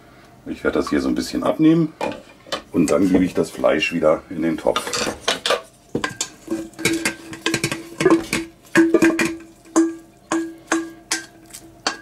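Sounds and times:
utensil scraping pot and bowl: 4.7 - 12.0.

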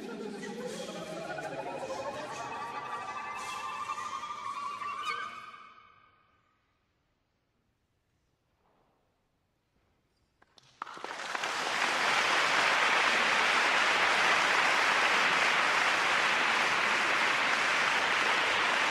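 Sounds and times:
audience applause: 10.6 - 18.9.

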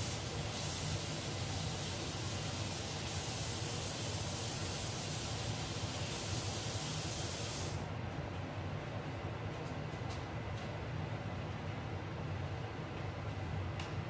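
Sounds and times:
steady hiss: 0.0 - 7.9.

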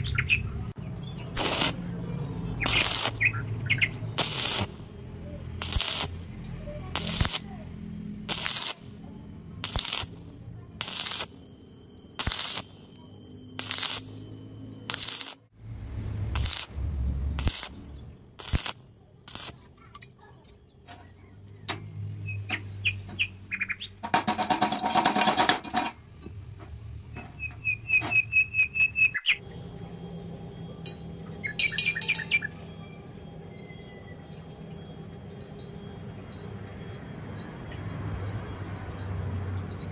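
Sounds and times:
high chirping trills: 0.0 - 15.5, 27.2 - 39.9
welding arc crackling: 1.2 - 11.5, 12.1 - 20.0.

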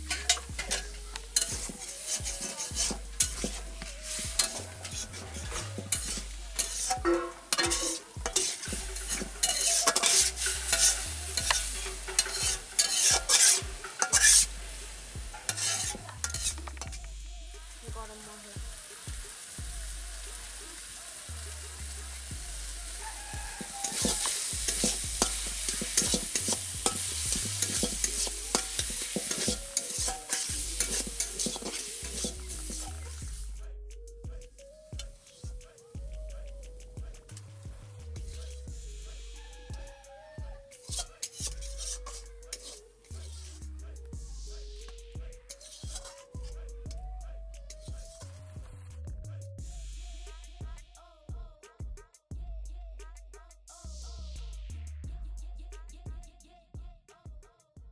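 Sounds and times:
frying sizzle: 0.0 - 33.5, 38.1 - 43.3, 44.2 - 46.6
metal spatula clinking on pan: 0.1 - 3.6, 5.9 - 14.5, 15.4 - 16.5, 23.6 - 32.8, 40.9 - 42.8.

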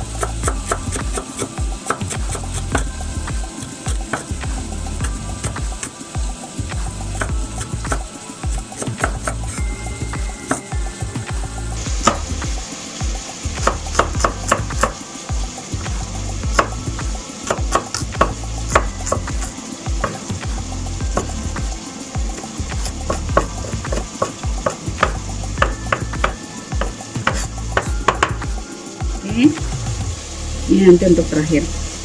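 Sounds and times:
food sizzling in frying pan: 0.0 - 32.0
cleaver chopping on wooden board: 8.8 - 9.4, 12.0 - 12.3, 13.6 - 15.0, 17.5 - 19.4, 22.8 - 28.4.

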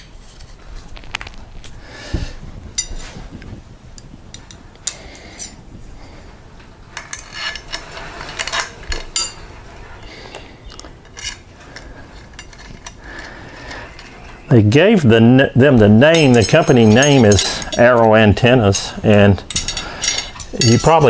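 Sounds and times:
metal antenna parts clicking and rattling: 2.8 - 5.7, 6.6 - 14.5, 15.7 - 21.0.

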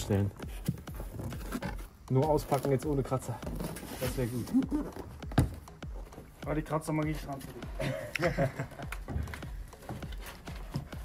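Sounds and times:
knocks and thumps handling box: 0.0 - 6.4.

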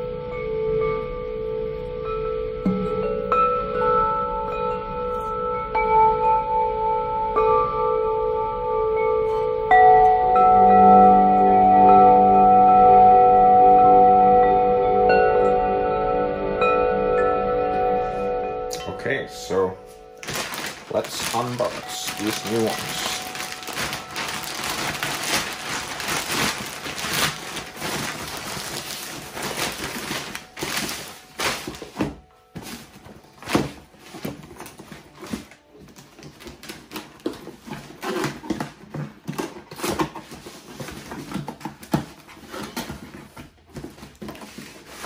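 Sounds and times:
plastic bag crinkling and tearing: 20.2 - 43.1
cardboard box being handled: 20.2 - 45.0.

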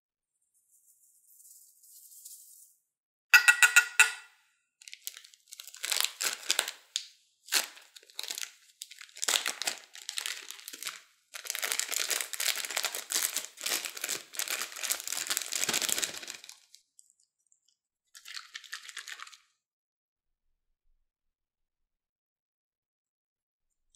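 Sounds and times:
plastic bag crinkling: 4.8 - 16.8, 18.2 - 19.4.

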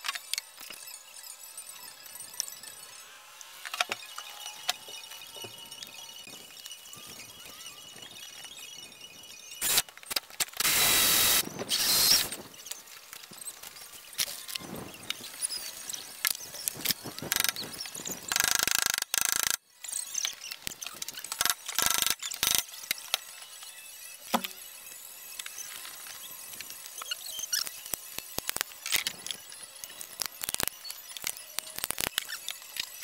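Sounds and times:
rasping bursts: 9.6 - 9.9, 10.5 - 12.4.

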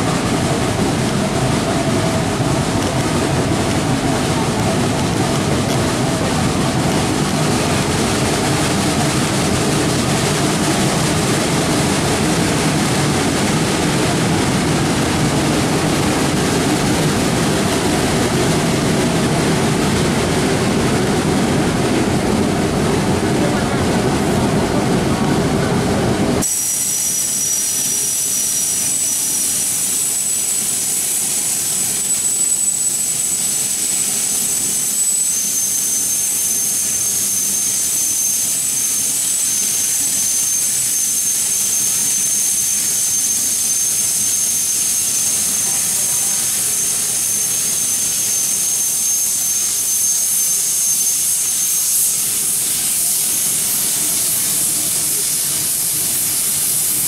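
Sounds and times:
locomotive steam hiss with whistle: 26.4 - 57.0.

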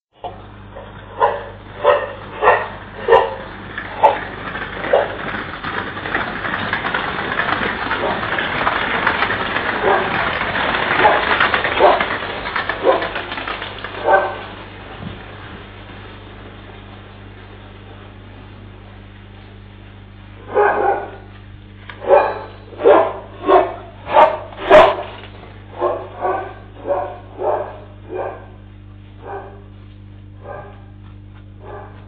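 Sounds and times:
electrical hum: 0.1 - 32.0
dog barking: 0.8 - 4.3, 9.8 - 10.1, 11.8 - 12.1, 14.0 - 14.4, 20.5 - 21.3, 22.0 - 25.2, 25.8 - 28.6, 29.2 - 29.7, 30.4 - 30.9, 31.6 - 32.0.

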